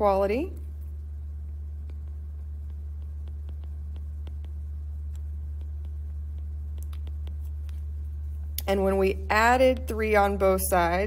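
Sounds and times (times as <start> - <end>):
steady low hum: 0.0 - 11.0
stylus tapping on glass screen: 1.8 - 8.0.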